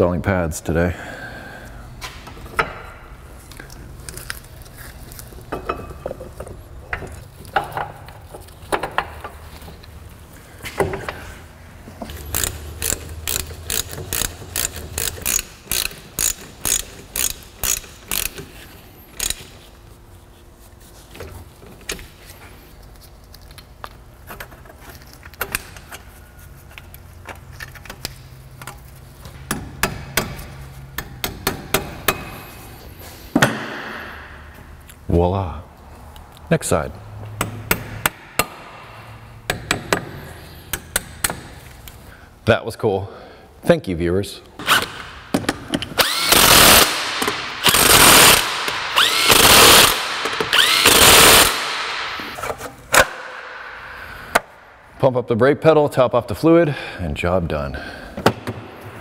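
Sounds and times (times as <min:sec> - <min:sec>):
ratchet wrench clicking: 0:12.1 - 0:19.5, 0:46.0 - 0:51.7.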